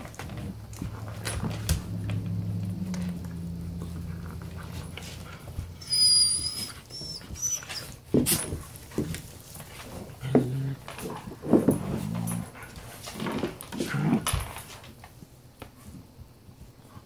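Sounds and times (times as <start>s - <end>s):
puppy growling: 0.0s - 9.2s, 9.8s - 14.4s
puppy squealing: 5.7s - 8.0s.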